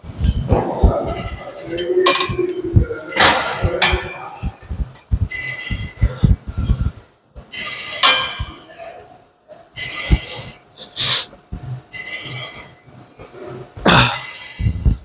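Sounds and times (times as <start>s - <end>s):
low thuds: 2.1s - 7.1s.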